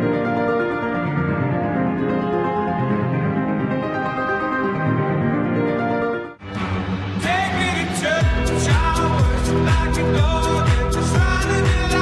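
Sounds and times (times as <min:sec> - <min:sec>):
background pop music: 0:00.0 - 0:12.0.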